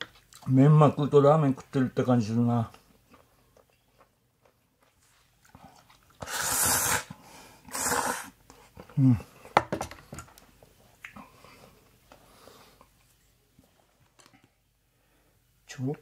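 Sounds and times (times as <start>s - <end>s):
person slurping noodles: 6.2s - 8.4s.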